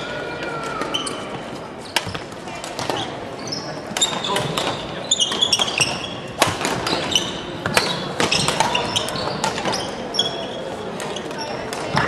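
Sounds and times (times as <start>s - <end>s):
shoes squeaking on wooden floor: 3.0s - 11.6s
rackets striking shuttlecocks: 3.9s - 10.0s.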